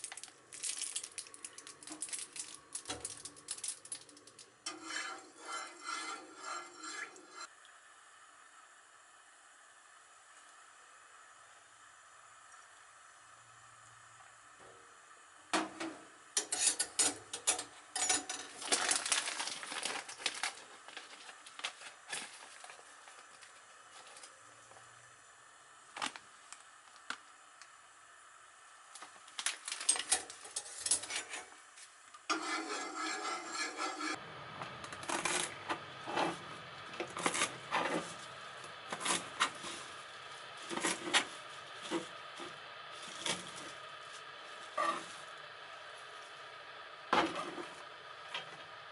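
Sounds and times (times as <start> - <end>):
kitchen utensils clinking: 16.4 - 19.2.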